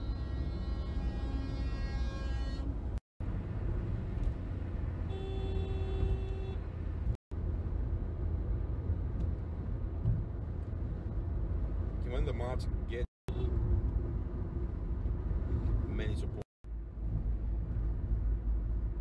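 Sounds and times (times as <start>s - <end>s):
vehicle horn honking: 0.0s - 2.8s, 5.1s - 6.7s
car road and engine rumble: 0.0s - 19.0s.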